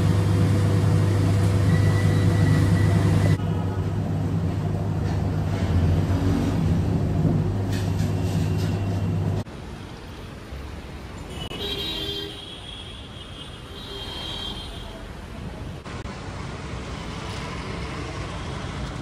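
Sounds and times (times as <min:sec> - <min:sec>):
buses and motorbikes passing: 0:04.4 - 0:09.5, 0:15.8 - 0:19.0.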